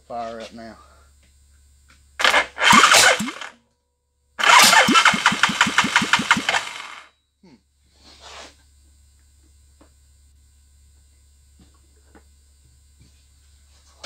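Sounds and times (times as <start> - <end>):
engine cranking without starting: 2.2 - 3.5, 4.4 - 7.1.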